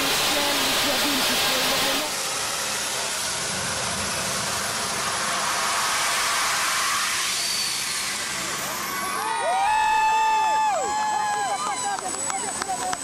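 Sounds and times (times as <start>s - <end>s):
jet turbines rushing: 0.0s - 13.0s.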